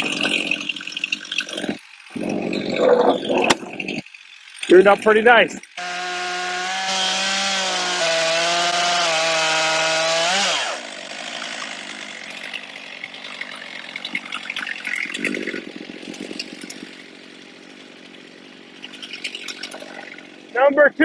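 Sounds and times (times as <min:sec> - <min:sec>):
chainsaw cutting log: 0:00.0 - 0:20.9
rustling dry leaves: 0:08.3 - 0:20.6.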